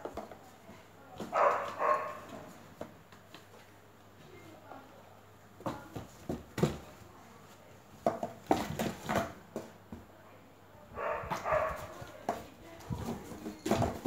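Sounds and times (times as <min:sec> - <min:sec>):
knocks on cardboard box: 0:05.6 - 0:06.9, 0:08.0 - 0:09.7
scratching on cardboard: 0:11.1 - 0:14.0.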